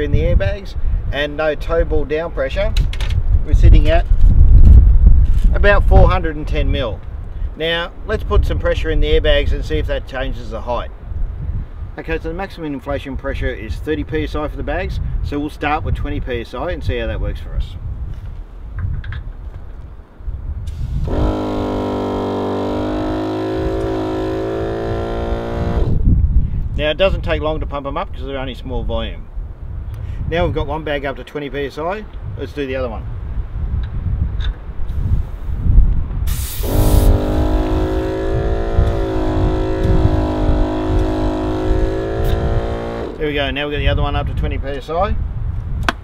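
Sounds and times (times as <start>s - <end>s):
wind buffeting microphone: 0.0s - 21.6s, 24.8s - 46.0s
air compressor buzzing hum: 20.7s - 26.0s, 36.3s - 43.2s.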